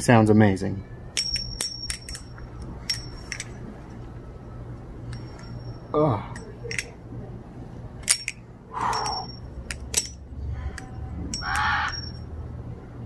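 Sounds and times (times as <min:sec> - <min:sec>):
butterfly knife metallic clicks: 0:06.4 - 0:07.0, 0:08.0 - 0:12.2
crows cawing: 0:11.4 - 0:12.1.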